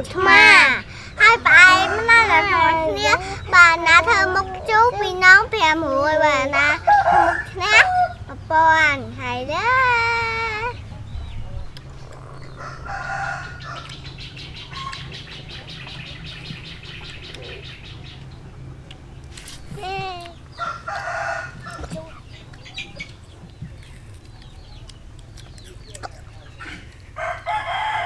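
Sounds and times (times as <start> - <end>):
rooster crowing: 1.5 - 2.6, 6.9 - 8.2, 12.6 - 15.0, 20.6 - 21.9, 27.1 - 28.0.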